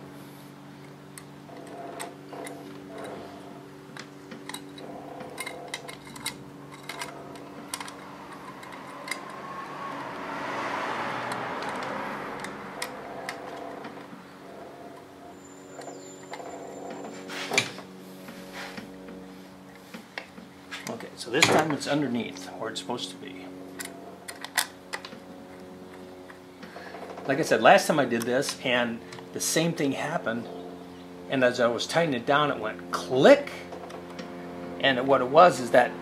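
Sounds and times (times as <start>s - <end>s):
steady hum: 0.0s - 36.0s
screwdriver and screws clicking on metal: 4.0s - 9.4s.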